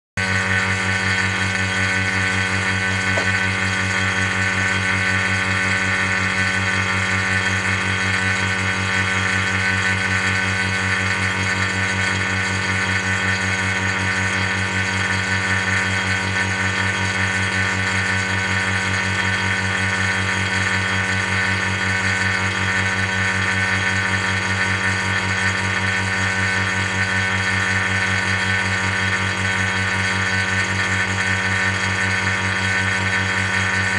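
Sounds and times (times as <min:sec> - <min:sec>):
vacuum pump motor whir: 0:00.2 - 0:33.9
electrical hum: 0:00.4 - 0:05.5.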